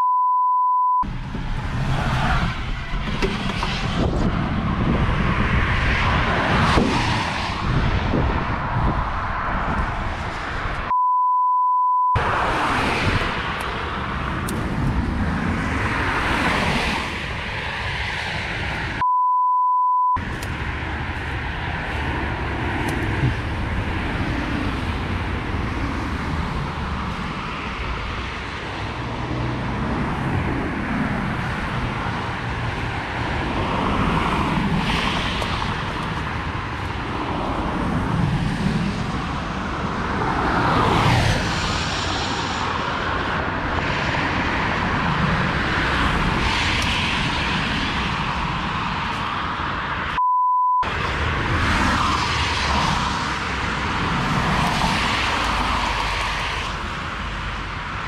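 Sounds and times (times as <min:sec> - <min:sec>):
bleep tones: 0:00.0 - 0:01.0, 0:10.9 - 0:12.2, 0:19.0 - 0:20.2, 0:50.2 - 0:50.9
traffic passing on wet road: 0:01.0 - 0:10.9, 0:12.2 - 0:19.0, 0:20.2 - 0:50.2, 0:50.8 - 0:58.0.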